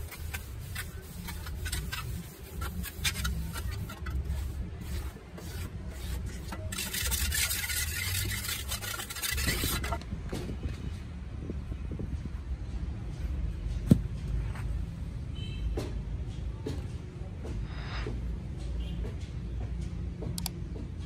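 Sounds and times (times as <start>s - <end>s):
metal trowel scraping cement: 0.0s - 10.0s.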